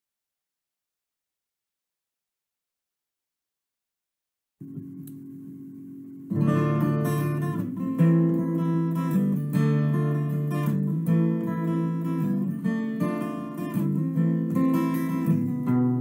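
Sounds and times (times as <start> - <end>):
strummed acoustic guitar: 6.3 - 16.0.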